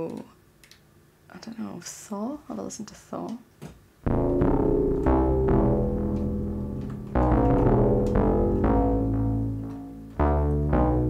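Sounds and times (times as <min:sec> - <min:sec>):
deep sustained synth bass notes: 0:04.1 - 0:11.0.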